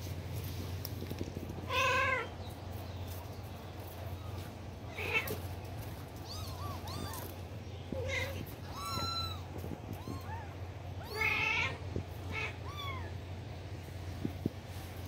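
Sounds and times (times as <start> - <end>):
kittens mewing: 4.9 - 13.3.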